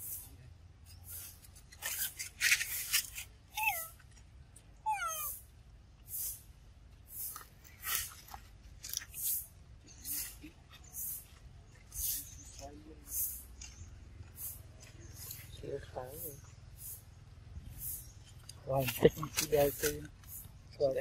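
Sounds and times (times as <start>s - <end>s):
monkey high squeaks: 1.1s - 4.0s, 4.9s - 5.4s, 11.9s - 12.5s.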